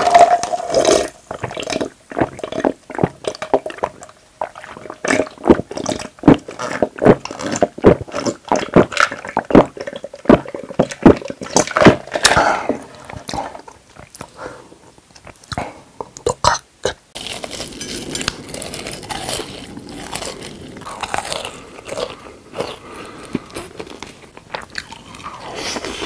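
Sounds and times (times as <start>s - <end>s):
person gulping a drink: 0.0s - 14.4s, 15.2s - 17.0s.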